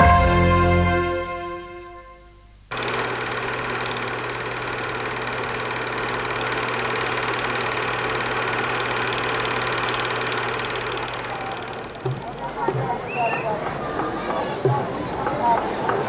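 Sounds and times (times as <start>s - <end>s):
film projector clatter: 2.7s - 12.7s.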